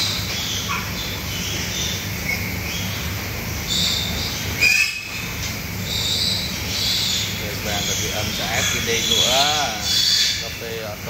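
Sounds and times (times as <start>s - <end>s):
steady low hum: 0.0s - 11.0s
pigs chirping and squeaking: 5.8s - 10.7s
pig squealing: 6.8s - 10.8s.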